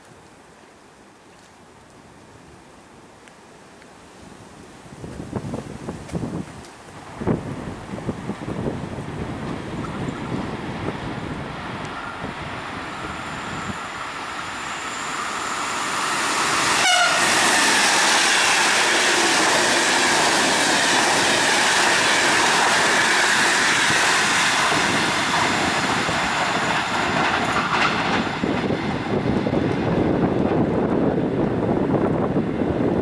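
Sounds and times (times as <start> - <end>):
train passing at speed: 7.0 - 33.0.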